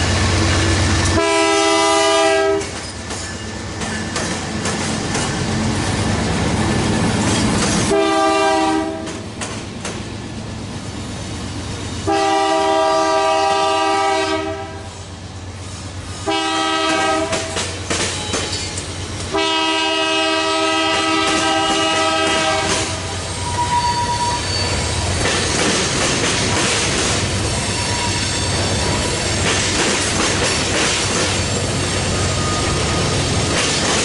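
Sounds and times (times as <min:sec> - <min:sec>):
train cars rumbling and clacking: 0:00.0 - 0:34.0
train air horn: 0:01.1 - 0:02.8, 0:07.9 - 0:09.2, 0:12.0 - 0:15.0, 0:16.2 - 0:17.7, 0:19.3 - 0:24.5
high wheel squeal: 0:23.2 - 0:25.6, 0:27.4 - 0:29.4, 0:31.4 - 0:33.4.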